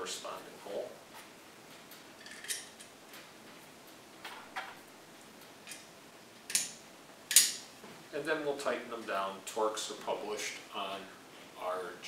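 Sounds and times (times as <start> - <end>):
small metal screws clinking: 2.2 - 2.9.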